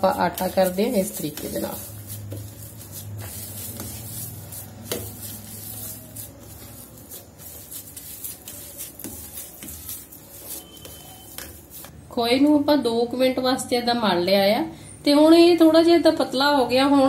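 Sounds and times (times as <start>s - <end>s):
hand rubbing on steel plate: 0.0s - 12.0s.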